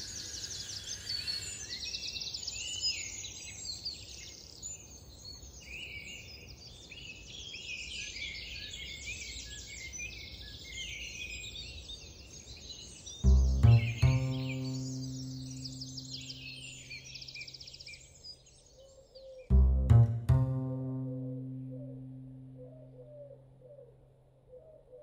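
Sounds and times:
songbirds chirping and trilling: 0.0 - 19.6.

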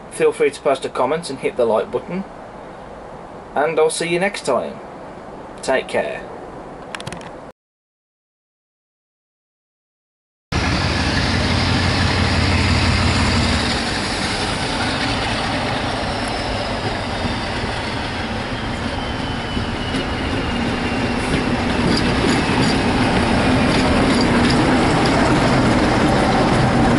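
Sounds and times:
diesel locomotive passing: 10.5 - 26.9
locomotive engine whine: 10.6 - 26.9.

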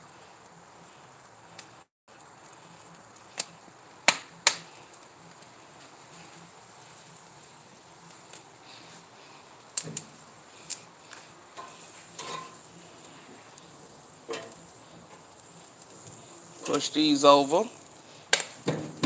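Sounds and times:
faint steady hiss: 0.0 - 19.0
food clattering on grill grates: 9.8 - 19.0.

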